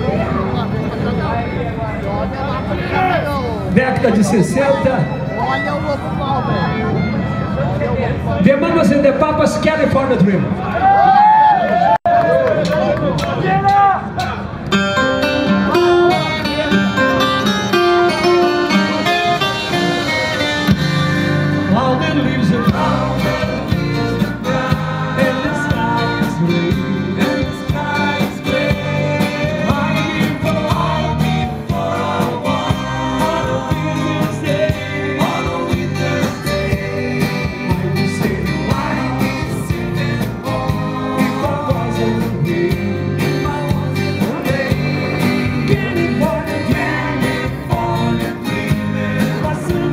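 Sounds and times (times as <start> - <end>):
guitars strumming: 14.5 - 49.9
drum kit: 18.7 - 21.7, 22.6 - 49.9
man singing into a microphone: 21.6 - 49.9.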